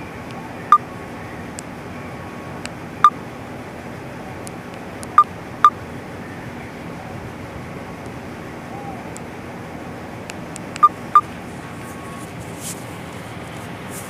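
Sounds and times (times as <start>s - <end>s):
short electronic beeps: 5.1s - 5.8s.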